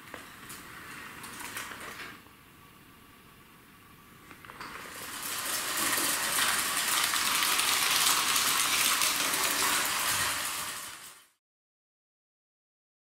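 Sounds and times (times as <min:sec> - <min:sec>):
model train rattling on metal track: 0:08.1 - 0:11.3.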